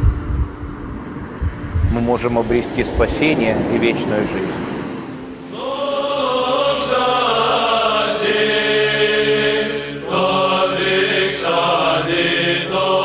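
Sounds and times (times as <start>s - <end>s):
steady low drone: 0.0s - 6.7s
church chant of held voices: 2.1s - 13.0s.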